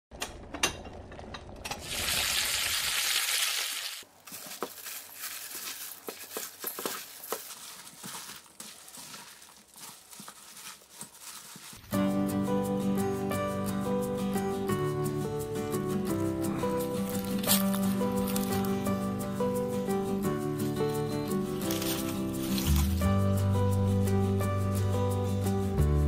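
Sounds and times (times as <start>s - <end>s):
wet squishing and rustling of greens: 4.0s - 12.0s, 17.0s - 18.9s, 21.5s - 23.3s.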